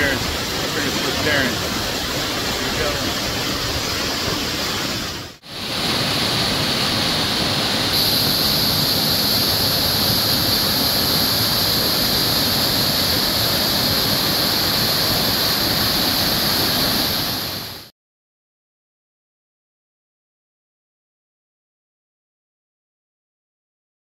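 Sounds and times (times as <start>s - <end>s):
waterfall splashing onto rocks: 0.0s - 17.9s.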